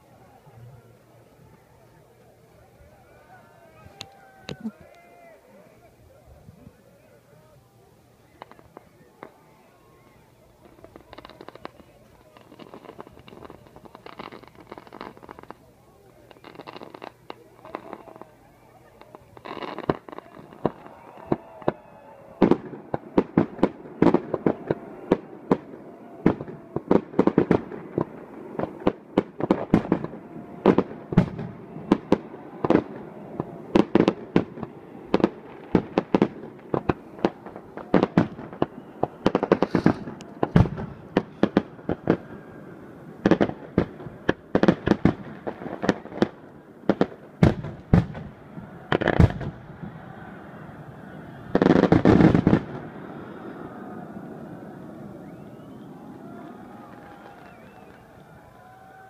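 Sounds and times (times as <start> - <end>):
fireworks bangs and pops: 8.3 - 9.4, 10.6 - 18.3, 18.9 - 42.3, 43.1 - 50.0, 51.4 - 53.0, 56.9 - 58.2.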